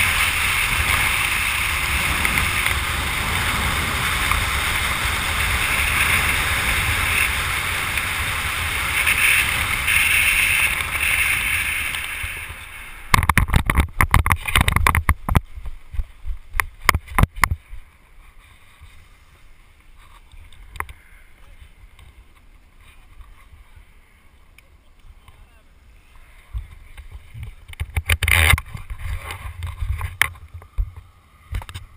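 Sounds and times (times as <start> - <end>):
wind rushing over microphone: 0.0 - 17.9
faint clicks: 19.8 - 23.4.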